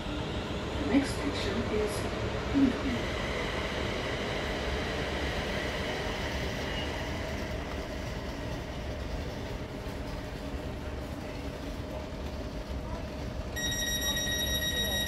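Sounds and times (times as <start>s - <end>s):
electric train hum and hiss: 0.0s - 15.0s.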